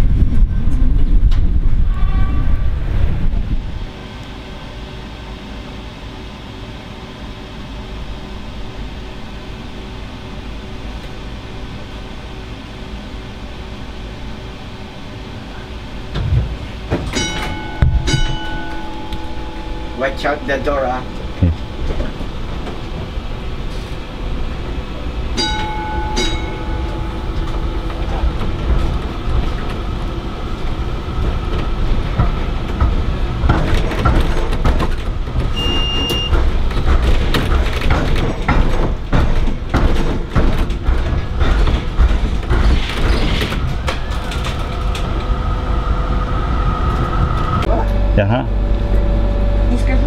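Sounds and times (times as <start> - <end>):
tram rumble: 0.0 - 50.0
wheels clacking over rail crossing: 16.0 - 50.0.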